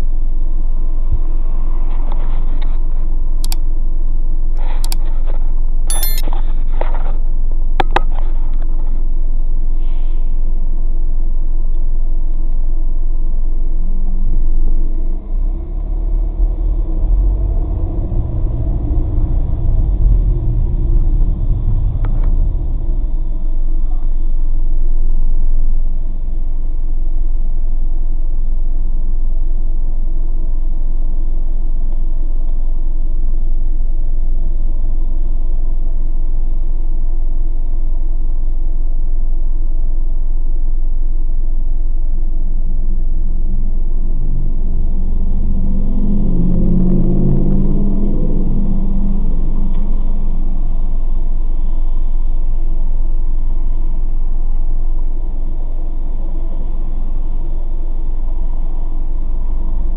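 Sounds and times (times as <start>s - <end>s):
car engine idling hum: 0.0s - 59.9s
car engine and road noise: 0.4s - 9.3s, 13.1s - 27.3s, 41.6s - 59.9s.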